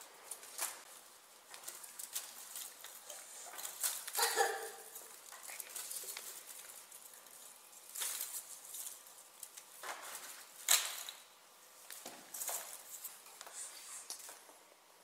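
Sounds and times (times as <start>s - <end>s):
soft rustling and shuffling: 11.7s - 14.7s.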